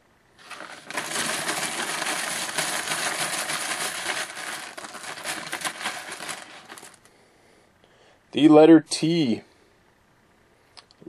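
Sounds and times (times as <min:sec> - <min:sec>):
small hard pieces rattling: 0:00.4 - 0:07.0.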